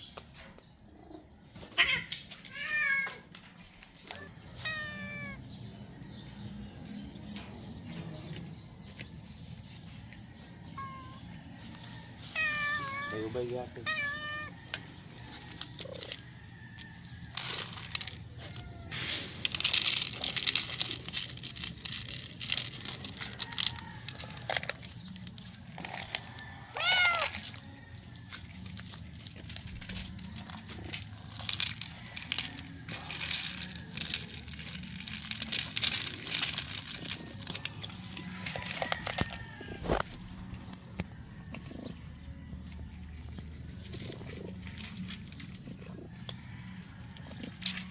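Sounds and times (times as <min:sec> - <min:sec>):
cat meowing: 0:04.2 - 0:05.4, 0:12.4 - 0:13.1, 0:13.8 - 0:14.6, 0:26.7 - 0:27.3
dry kibble rattling in plastic: 0:12.4 - 0:40.0, 0:43.9 - 0:47.9.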